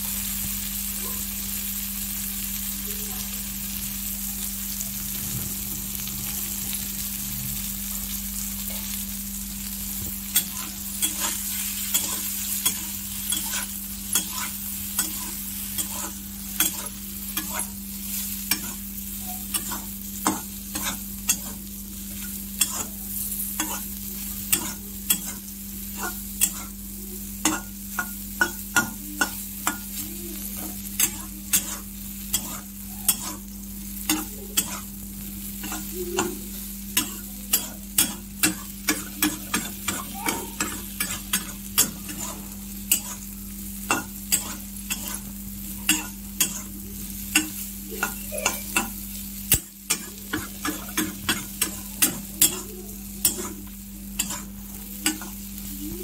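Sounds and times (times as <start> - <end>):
vegetables sizzling in oil: 0.0 - 56.0
metal spatula scraping a pan: 10.3 - 26.8, 30.6 - 33.5, 34.1 - 34.9, 37.0 - 43.3, 43.9 - 55.9.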